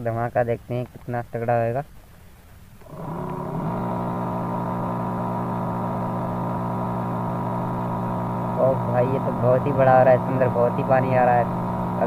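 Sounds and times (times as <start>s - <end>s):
electric water pump motor humming: 2.8s - 12.0s.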